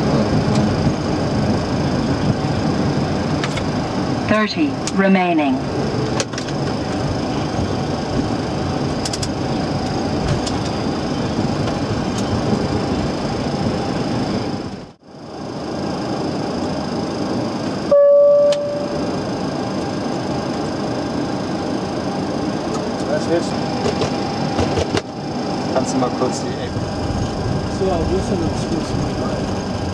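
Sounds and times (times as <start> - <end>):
aircraft cockpit noise: 0.0 - 29.9
thin high whine: 0.0 - 29.9
single-tone beep: 17.9 - 19.0.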